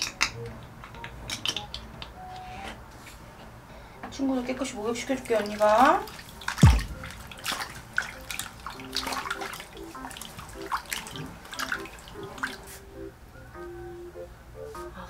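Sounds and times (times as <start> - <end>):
water splashing in a basin: 5.1 - 12.8
loud low thump: 6.6 - 7.5.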